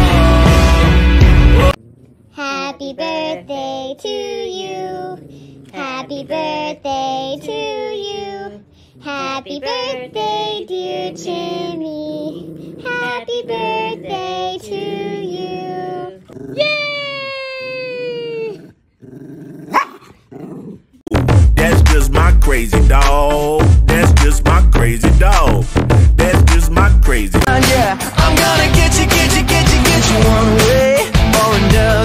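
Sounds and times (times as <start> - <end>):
high child-like voice singing: 2.4 - 17.1.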